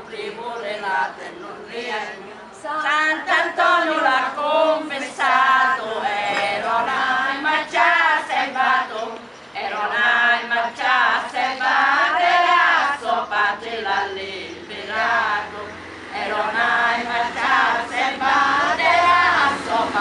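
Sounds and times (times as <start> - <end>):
women singing unaccompanied: 0.0 - 20.0.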